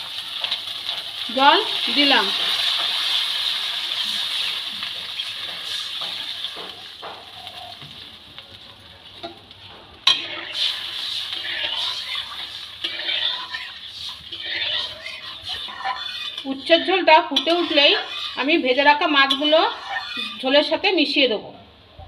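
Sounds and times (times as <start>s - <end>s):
water hissing in hot oil: 0.0s - 7.9s, 10.2s - 16.5s
spatula scraping through curry: 10.1s - 20.4s
metal spatula clinking on pan: 19.2s - 20.4s.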